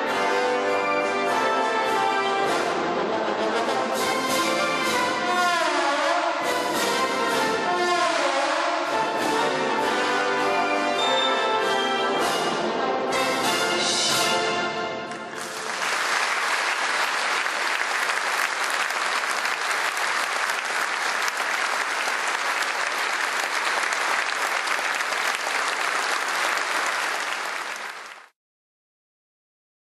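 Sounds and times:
audience applauding: 15.1 - 28.4.

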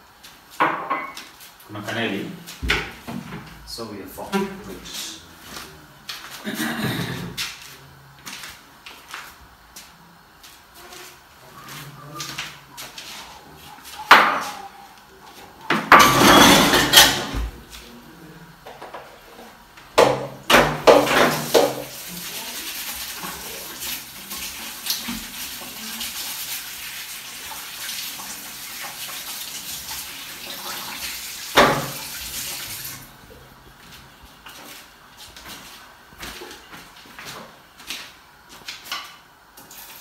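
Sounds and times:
pots and pans clattering: 15.7 - 17.5, 20.0 - 22.0.

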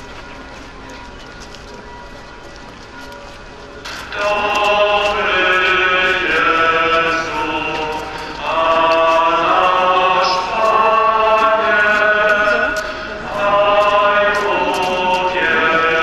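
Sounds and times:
many voices singing a hymn: 3.9 - 16.0.

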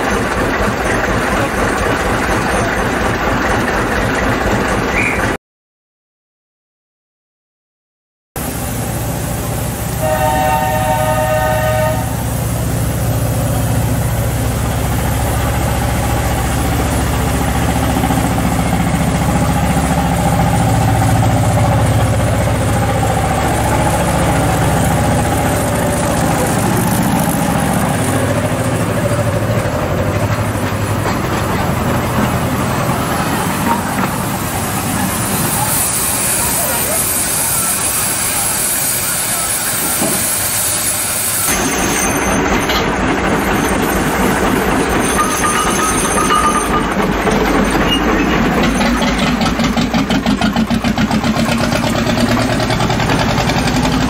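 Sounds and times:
locomotive rumble: 0.0 - 5.4, 8.4 - 54.0
locomotive horn blast: 9.8 - 12.6.

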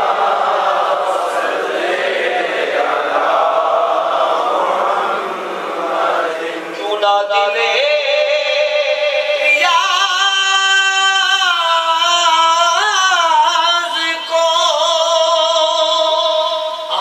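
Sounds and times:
man singing unaccompanied: 6.1 - 17.0.

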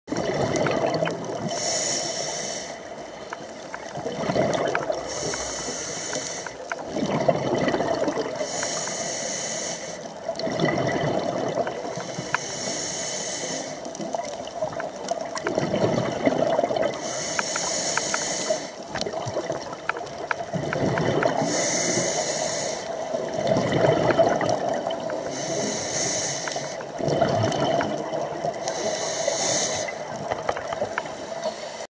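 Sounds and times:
gush of exhaled bubbles: 0.1 - 1.6, 3.8 - 5.7, 6.6 - 8.5, 10.3 - 12.0, 14.0 - 17.1, 18.9 - 22.0, 23.0 - 25.6, 26.8 - 28.8
regulator inhale hiss: 1.4 - 3.3, 5.0 - 6.8, 8.4 - 10.2, 11.8 - 14.1, 17.0 - 18.9, 21.4 - 23.2, 25.1 - 27.0, 28.5 - 31.9.

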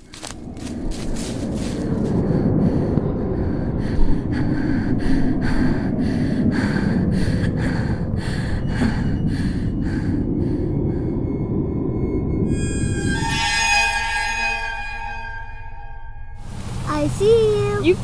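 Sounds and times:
steady low rumble: 0.0 - 18.0
person breathing hard: 1.5 - 11.3.

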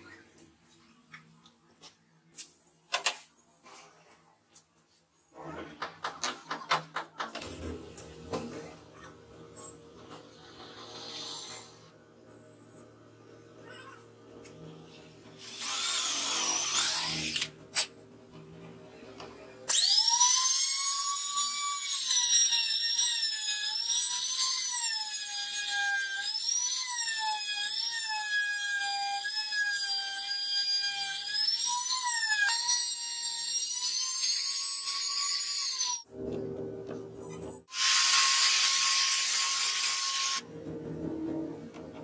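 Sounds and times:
router high-pitched whine: 19.7 - 20.8
power tool burst: 37.7 - 40.4.

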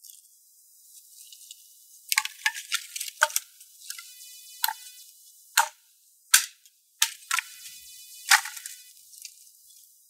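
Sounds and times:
wooden boards cracking: 5.6 - 7.6, 8.3 - 8.8.

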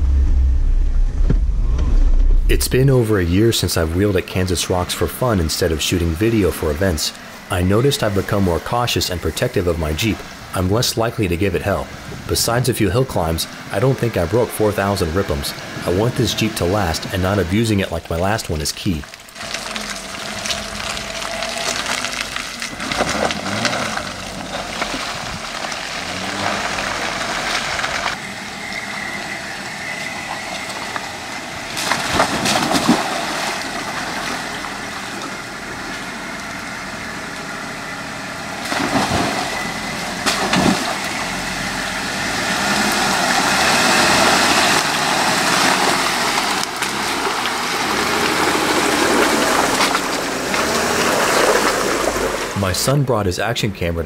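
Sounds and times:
off-road vehicle engine running: 0.0 - 54.0
water sloshing around tyres: 18.2 - 52.6.

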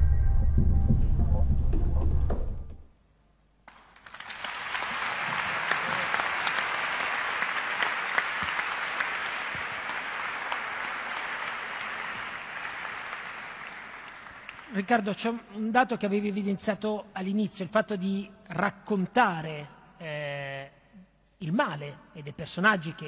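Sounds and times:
audience applauding: 3.7 - 15.0.

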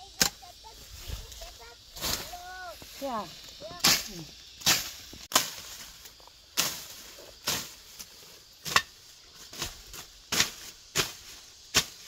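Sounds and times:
hand tool chopping grass: 0.2 - 0.4, 3.6 - 12.0.

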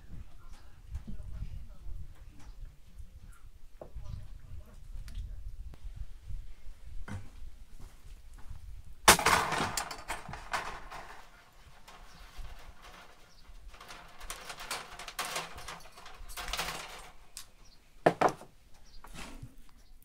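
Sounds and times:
rustles and scrapes on foil: 10.3 - 17.4.

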